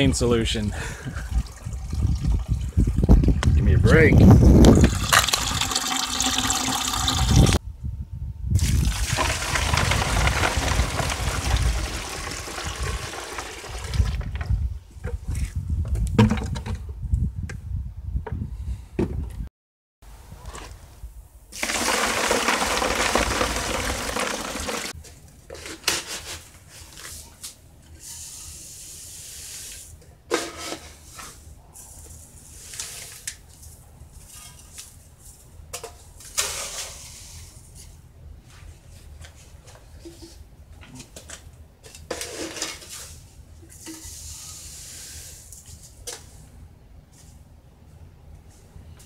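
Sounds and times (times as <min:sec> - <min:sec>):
water pouring into bucket: 0:01.1 - 0:03.1, 0:04.7 - 0:07.6, 0:08.6 - 0:14.3, 0:21.6 - 0:25.0.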